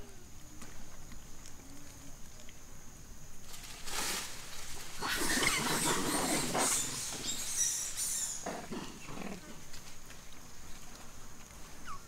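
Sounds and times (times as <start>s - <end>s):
macaque rough low calls: 4.8s - 9.7s.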